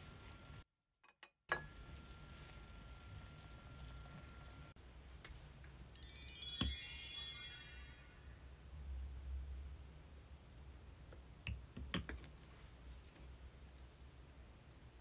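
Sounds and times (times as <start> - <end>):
broth simmering in a pot: 0.0 - 0.7, 1.5 - 4.8
twinkling chime sound effect: 6.0 - 8.5.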